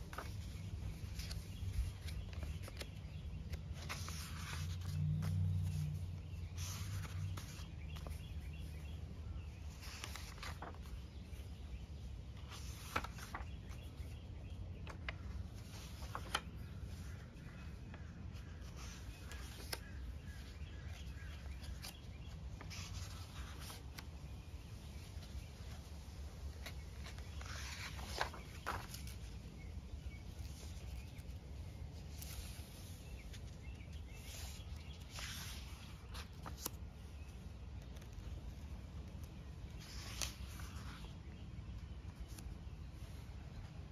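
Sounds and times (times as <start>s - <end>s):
paper pages turning: 0.0s - 43.9s
low outdoor rumble: 0.1s - 11.0s.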